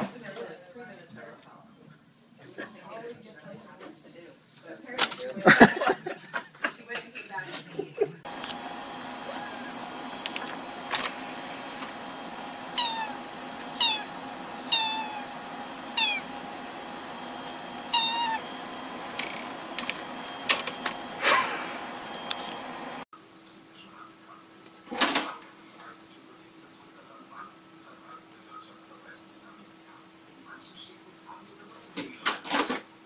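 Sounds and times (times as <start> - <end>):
steady hum: 8.2 - 23.1
sharp clicks: 10.2 - 11.2, 19.0 - 21.0
cat meowing: 12.6 - 16.5, 17.8 - 18.6.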